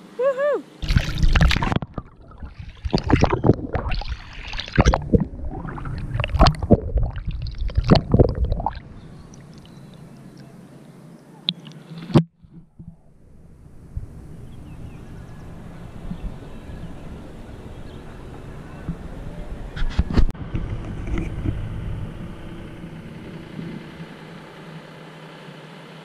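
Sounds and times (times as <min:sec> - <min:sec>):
paddle splashing through water: 0:00.8 - 0:09.9
water lapping: 0:00.8 - 0:10.6.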